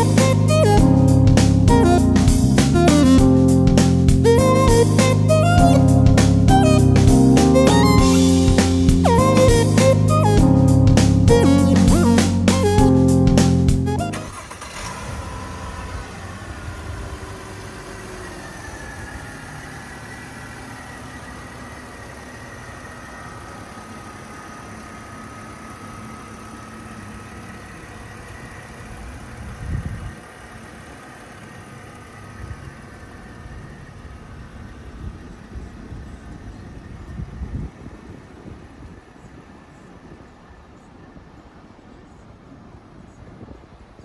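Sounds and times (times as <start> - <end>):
car engine idling: 0.0 - 37.4.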